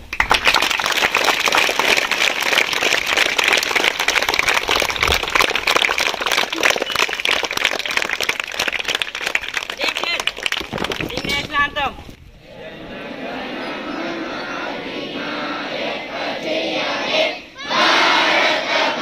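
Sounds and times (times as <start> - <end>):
crowd of children applauding: 0.0 - 11.5.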